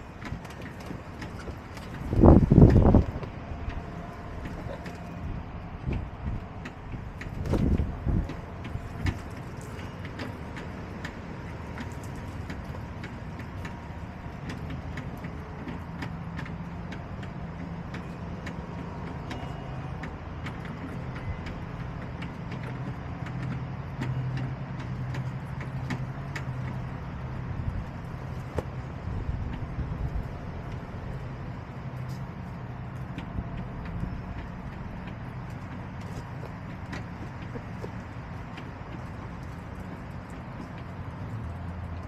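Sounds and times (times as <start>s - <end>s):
engine humming: 0.0s - 42.0s
small clicks and taps: 5.9s - 27.2s.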